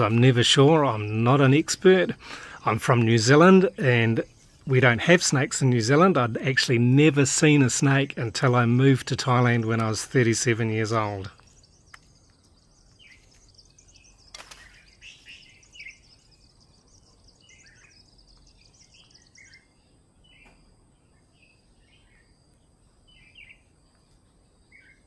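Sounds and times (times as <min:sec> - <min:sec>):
small birds chirping: 0:00.0 - 0:25.0
sharp click: 0:14.3 - 0:14.9.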